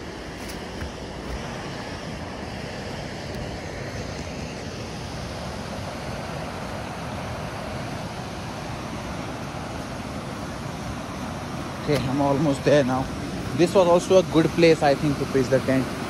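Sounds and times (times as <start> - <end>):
mountain stream rushing over rocks: 0.0 - 16.0.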